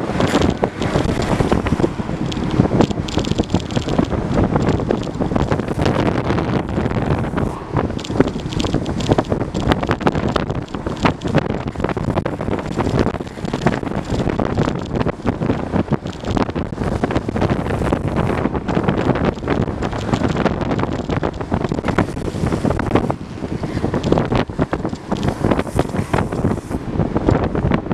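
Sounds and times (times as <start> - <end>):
skateboard wheels rolling on asphalt: 0.0 - 27.9
wind buffeting microphone: 0.0 - 27.9.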